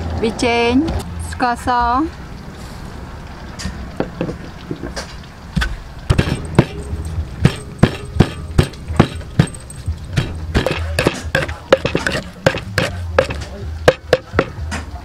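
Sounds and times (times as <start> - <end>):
wooden pestle pounding in mortar: 6.1 - 14.8.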